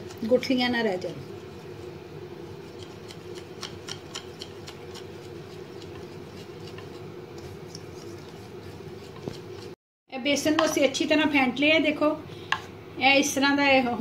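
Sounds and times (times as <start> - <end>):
steady low hum: 0.0 - 14.0
whisk clicking against bowl: 2.6 - 9.8.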